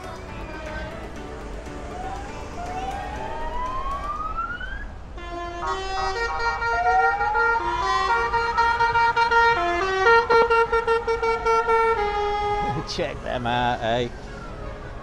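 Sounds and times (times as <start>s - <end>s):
vans driving past: 0.0s - 15.0s
siren-like whoop: 2.5s - 5.0s.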